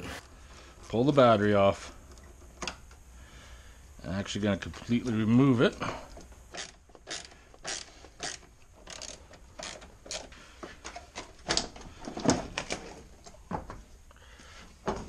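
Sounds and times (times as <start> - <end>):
hand ratchet clicking: 6.1 - 10.4.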